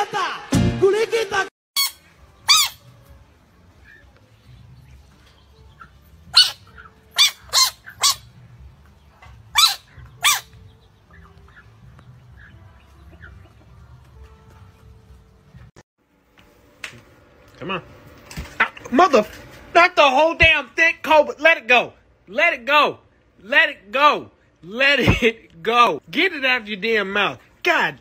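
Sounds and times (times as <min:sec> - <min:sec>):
sharp animal cries: 0:01.8 - 0:03.0, 0:06.3 - 0:08.4, 0:09.5 - 0:11.3.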